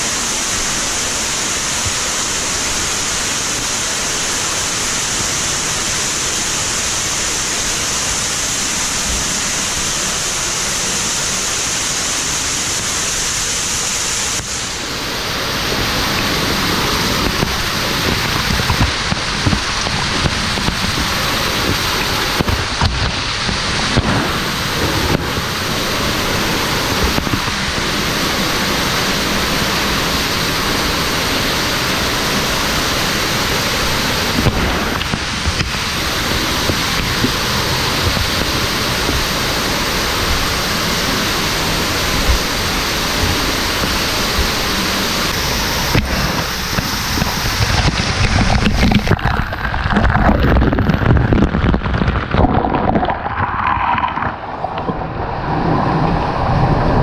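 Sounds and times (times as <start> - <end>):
waterfall rushing: 0.0 - 57.0
spray splashing on camera: 6.0 - 27.8, 33.5 - 54.3.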